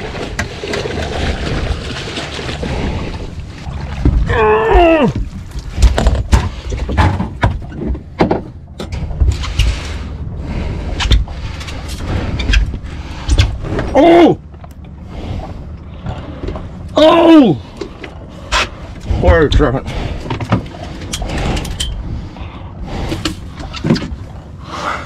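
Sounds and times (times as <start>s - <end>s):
man exclaiming: 13.9s - 14.4s, 17.0s - 17.6s.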